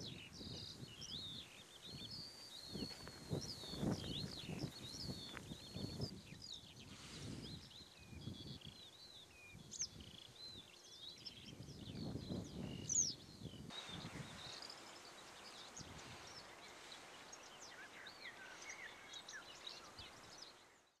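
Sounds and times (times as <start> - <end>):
wind rumbling on microphone: 0.0 - 20.7
songbirds chirping and singing: 0.0 - 21.0
steady hiss: 13.7 - 20.9.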